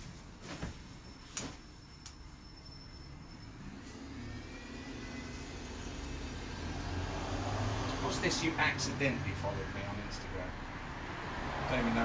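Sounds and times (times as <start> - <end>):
faint rising whine: 1.0 - 8.8.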